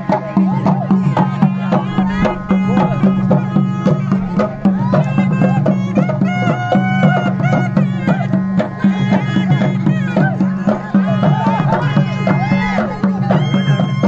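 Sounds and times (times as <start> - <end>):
drums beating quick rhythm: 0.0 - 14.0
held low drone: 0.5 - 6.5.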